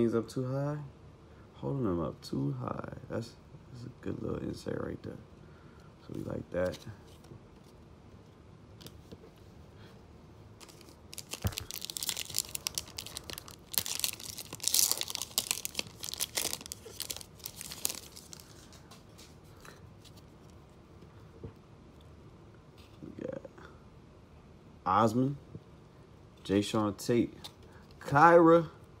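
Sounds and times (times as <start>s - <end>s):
wrapper crinkling and tearing: 10.6s - 18.8s
cards being handled: 10.6s - 20.6s.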